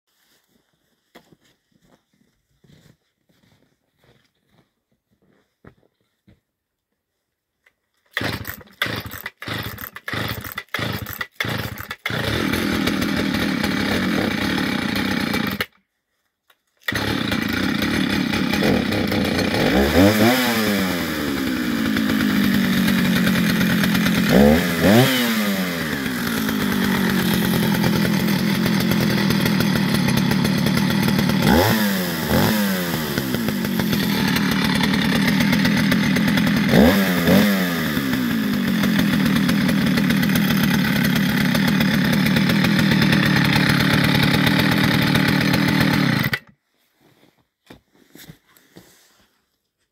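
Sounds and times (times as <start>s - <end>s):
chainsaw pull cord coughs: 8.1s - 15.6s, 16.8s - 22.4s
chainsaw running and revving: 8.1s - 15.8s, 16.8s - 46.5s.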